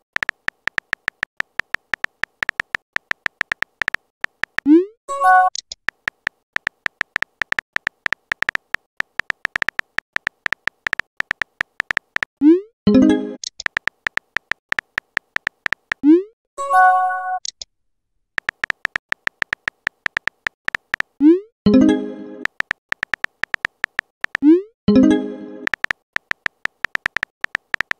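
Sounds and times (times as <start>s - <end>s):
keyboard tap clicks: 0.0s - 4.7s, 5.9s - 12.3s, 13.4s - 16.0s, 18.4s - 21.2s, 22.4s - 24.4s, 25.6s - 27.9s.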